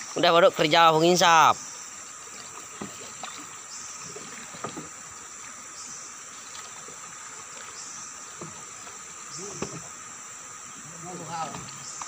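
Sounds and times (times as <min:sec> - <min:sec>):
high insect drone: 0:00.0 - 0:12.0
water lapping against boat: 0:00.0 - 0:12.0
small knocks on wooden boat: 0:02.7 - 0:03.4, 0:04.1 - 0:04.9, 0:08.3 - 0:09.9.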